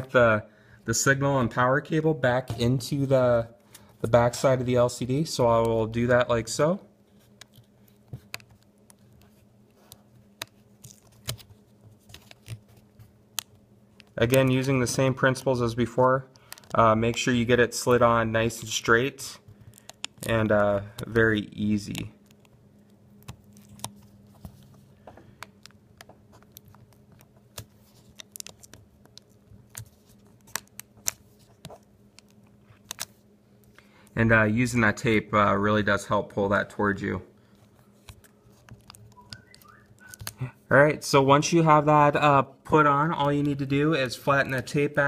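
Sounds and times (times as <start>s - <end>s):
steady low hum: 0.0s - 45.0s
fingertips clicking cable connector: 19.7s - 20.3s, 25.4s - 33.1s, 38.0s - 40.4s.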